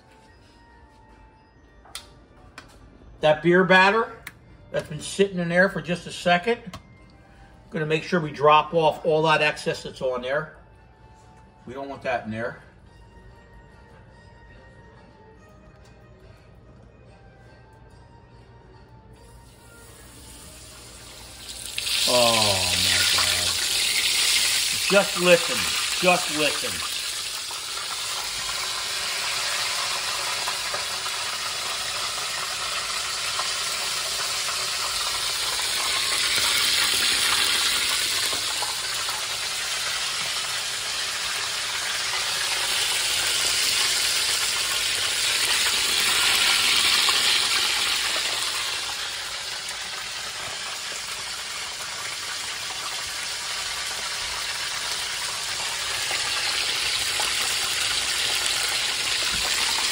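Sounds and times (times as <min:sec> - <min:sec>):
fish sizzling in hot oil: 0:19.5 - 0:59.9.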